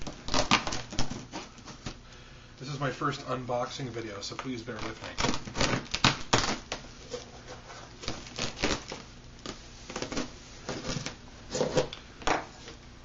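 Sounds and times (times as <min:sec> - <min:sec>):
knife slitting packing tape: 0:00.0 - 0:01.9, 0:04.8 - 0:06.8, 0:08.0 - 0:12.0.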